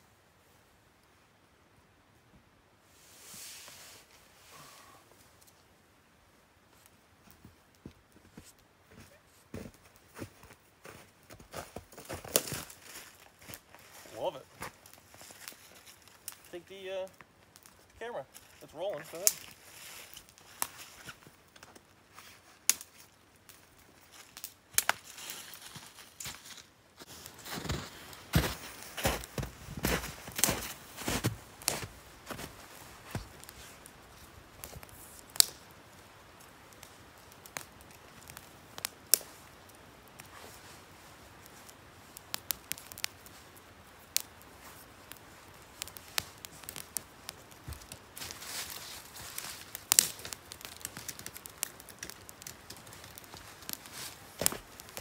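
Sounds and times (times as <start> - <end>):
campfire crackling: 0.0 - 55.0
footsteps crunching in snow: 7.2 - 16.5, 18.3 - 21.3, 24.0 - 35.0, 47.6 - 51.2, 52.8 - 55.0
fire pops and snaps: 9.6 - 55.0
sharp clicks and crackles: 44.0 - 55.0
rustling: 44.2 - 55.0.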